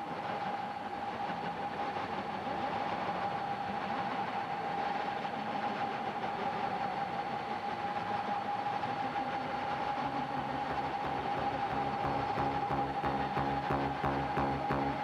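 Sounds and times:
synthesizer drone: 9.1 - 15.0
low bass notes: 10.2 - 15.0.

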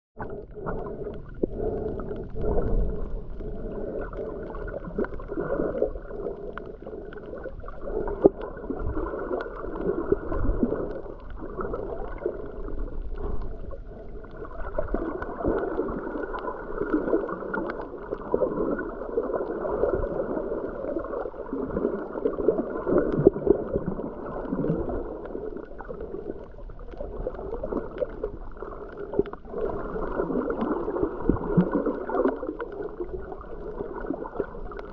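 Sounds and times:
underwater sloshing rumble: 0.2 - 34.9.

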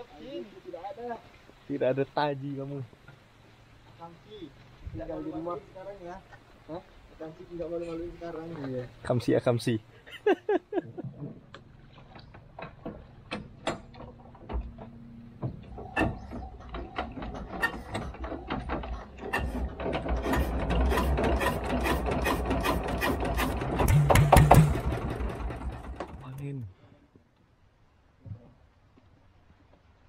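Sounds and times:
rapid clicking and rattling: 16.4 - 26.5.

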